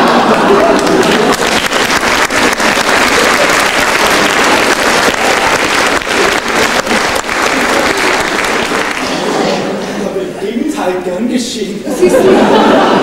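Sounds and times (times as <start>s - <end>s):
audience applauding: 0.0s - 9.7s.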